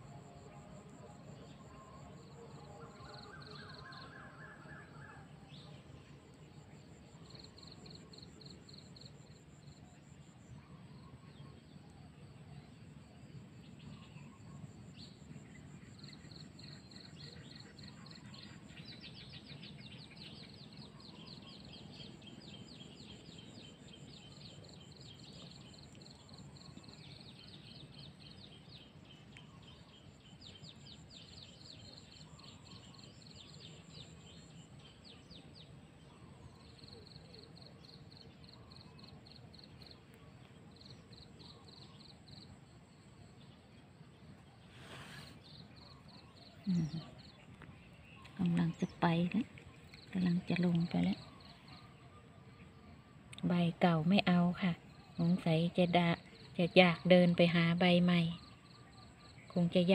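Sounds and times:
birds chirping in trills: 13.6s - 59.9s.

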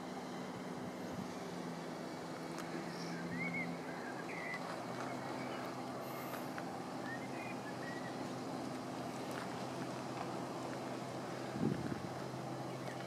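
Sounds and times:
low vehicle engine hum: 0.0s - 13.0s
faint bird chirps: 2.8s - 6.2s.

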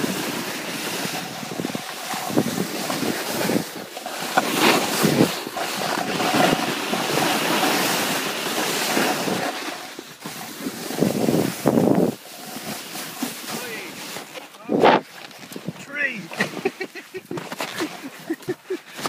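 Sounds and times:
wind rushing over microphone: 0.0s - 3.9s, 4.5s - 12.8s, 14.6s - 15.8s
snow hissing and scraping under skis: 0.0s - 19.0s.

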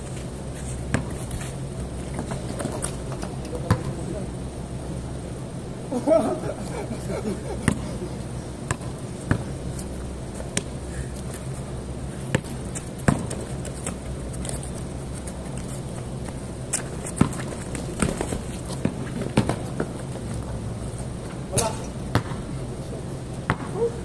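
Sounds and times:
steady low hum: 0.0s - 24.0s
basketball bouncing: 0.9s - 1.2s, 3.7s - 3.9s, 7.6s - 7.9s, 8.7s - 9.5s, 12.3s - 13.5s, 17.1s - 20.0s, 22.1s - 22.4s, 23.5s - 23.8s.

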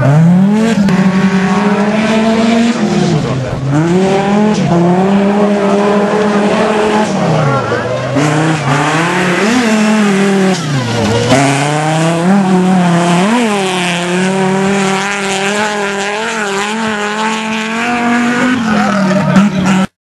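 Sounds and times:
race car engine revving: 0.0s - 20.0s.

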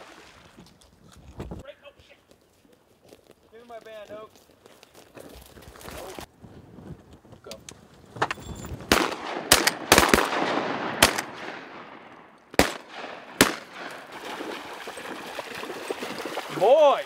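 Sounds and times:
shotgun shots: 8.9s - 14.3s.

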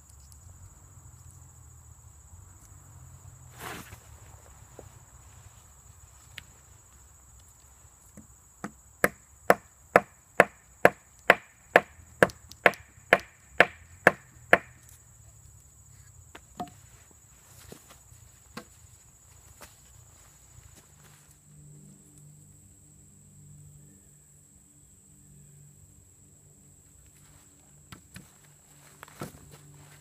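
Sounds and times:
stick knocking on wood: 8.2s - 14.8s, 16.4s - 16.8s.

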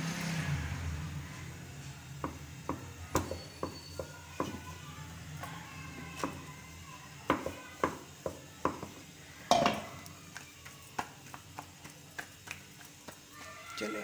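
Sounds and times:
dough patted on wooden board: 2.2s - 4.7s, 7.2s - 13.8s.

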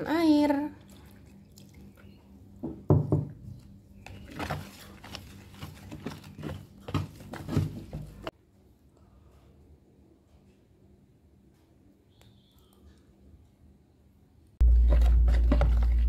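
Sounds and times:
spoon stirring batter in plastic bowl: 3.5s - 8.3s, 14.6s - 16.0s.

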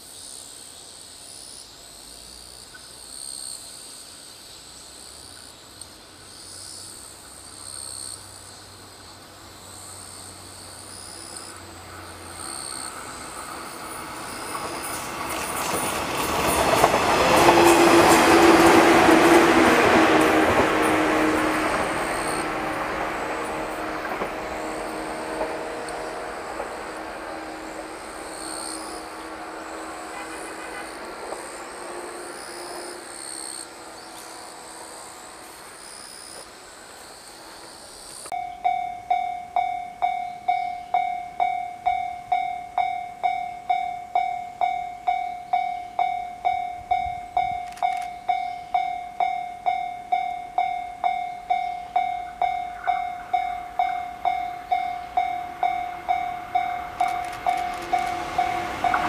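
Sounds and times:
train running noise: 5.0s - 59.0s
level crossing warning bell: 38.3s - 59.0s.

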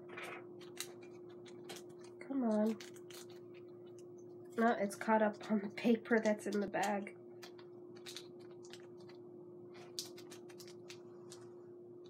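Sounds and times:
steady low hum: 0.0s - 12.0s
paper bag crinkling: 0.1s - 4.0s, 7.4s - 11.6s.

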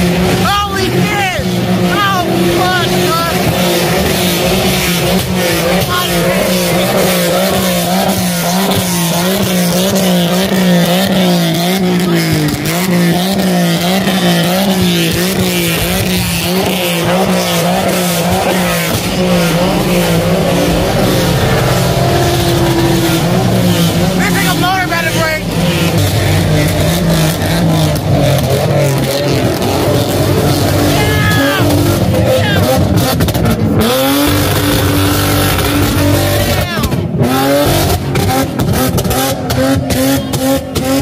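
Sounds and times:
car engine at high revs: 0.0s - 41.0s
tyres squealing: 0.4s - 33.1s.

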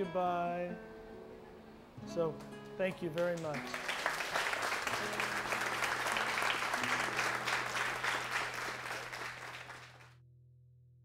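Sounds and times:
audience applauding: 2.6s - 10.1s.

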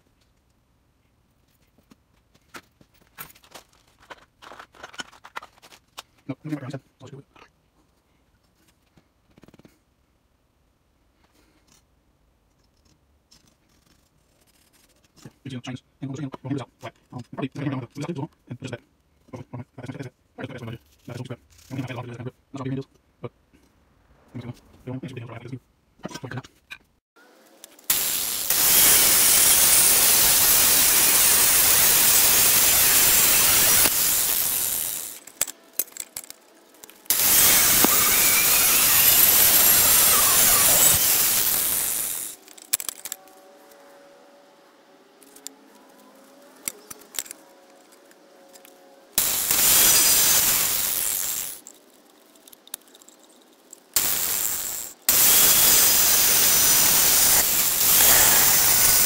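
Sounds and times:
angle grinder cutting steel: 27.8s - 36.1s, 37.0s - 43.3s, 49.2s - 51.7s, 54.0s - 59.0s.

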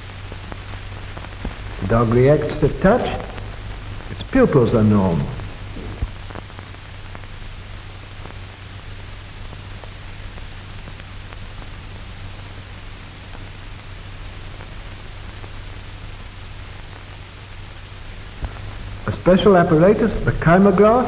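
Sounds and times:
film soundtrack hiss: 0.0s - 21.0s
low hum: 0.0s - 21.0s
faint clicks: 10.3s - 11.7s.

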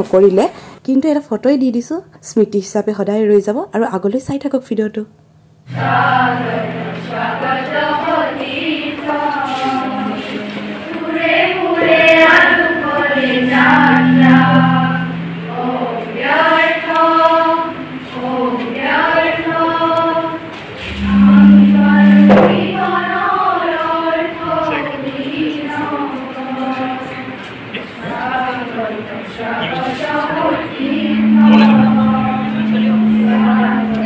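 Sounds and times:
women's choir singing: 5.7s - 34.0s
brief knock: 22.1s - 22.8s.

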